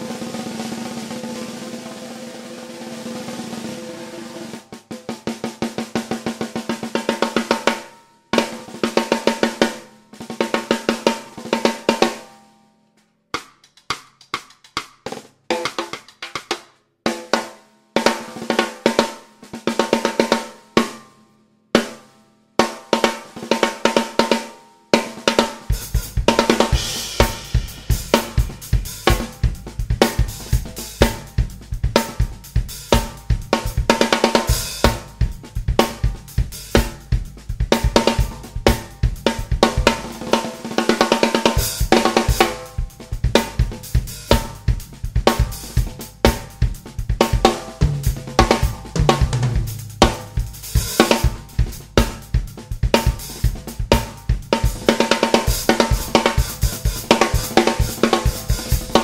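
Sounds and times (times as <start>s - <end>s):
cymbals: 0.0s - 5.2s, 25.0s - 59.0s
bright ringing snare drum: 0.0s - 12.4s, 15.1s - 21.1s, 21.8s - 59.0s
bass drum: 25.3s - 59.0s.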